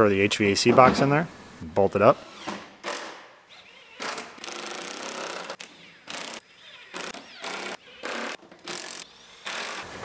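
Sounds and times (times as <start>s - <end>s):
cordless power tool driving bolts: 2.3s - 10.0s.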